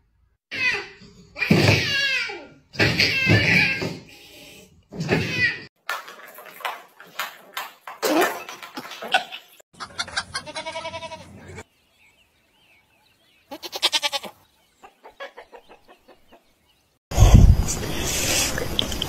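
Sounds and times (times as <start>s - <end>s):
goat bleating: 9.8s - 11.6s, 13.5s - 14.4s.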